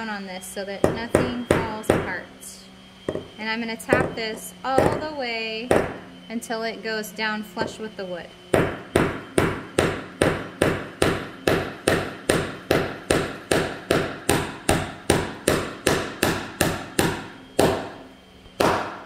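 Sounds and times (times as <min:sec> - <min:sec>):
hammer tapping a nail: 0:05.7 - 0:06.0, 0:08.5 - 0:18.0, 0:18.6 - 0:19.0.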